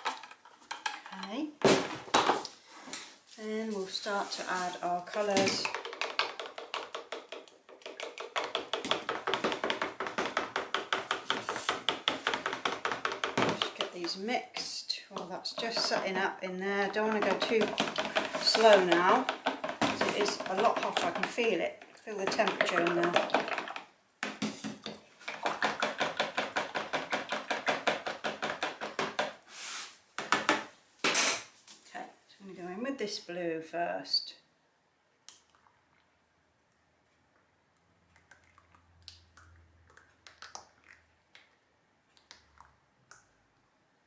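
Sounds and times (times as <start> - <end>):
utensil tapping against plastic jug: 5.6 - 14.2, 15.2 - 21.5, 22.2 - 29.3.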